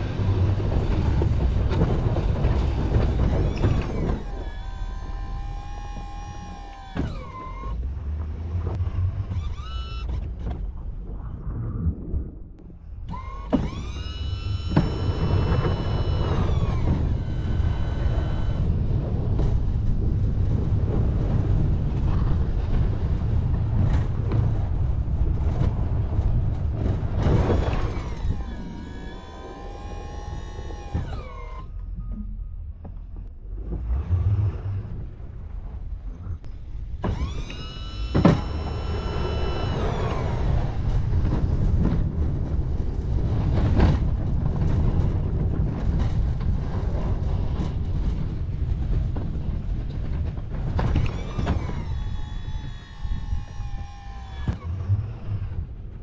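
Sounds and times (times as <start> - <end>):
motor whine gliding in pitch: 0.0 - 10.4, 13.1 - 19.6, 27.2 - 32.4, 37.0 - 41.4, 50.9 - 55.8
plow vehicle engine running: 0.0 - 11.1, 12.8 - 56.0.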